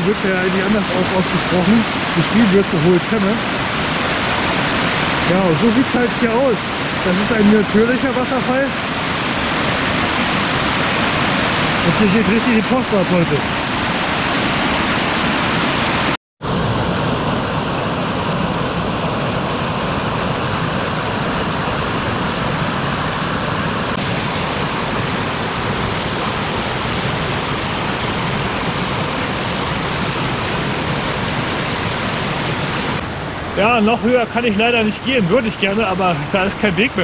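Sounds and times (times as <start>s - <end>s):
waterfall rushing: 0.0s - 37.0s.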